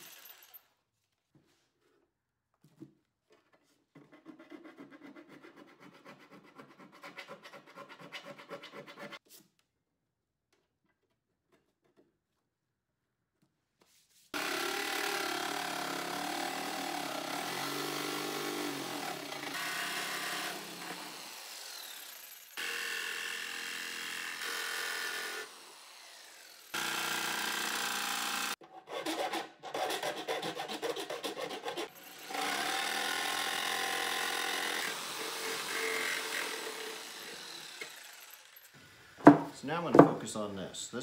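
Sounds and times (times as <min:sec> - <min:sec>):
electric jigsaw cutting steel: 0:00.0 - 0:00.7, 0:14.4 - 0:39.4.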